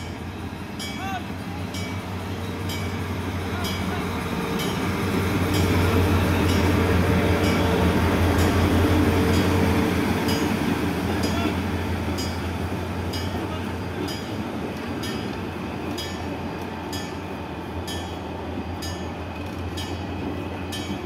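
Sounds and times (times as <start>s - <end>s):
locomotive engine drone: 0.0s - 21.0s.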